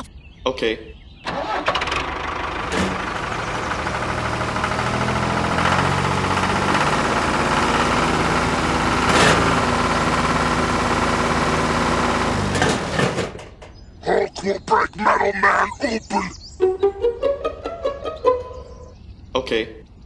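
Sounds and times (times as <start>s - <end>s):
small tractor engine running: 1.3s - 13.7s, 16.6s - 18.9s.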